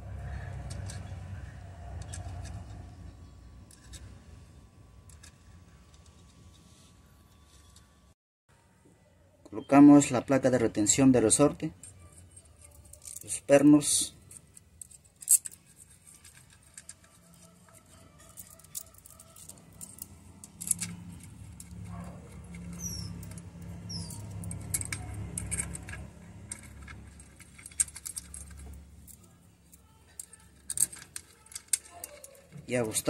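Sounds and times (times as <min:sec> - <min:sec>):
small metallic clicks and taps: 0:14.3 - 0:32.6.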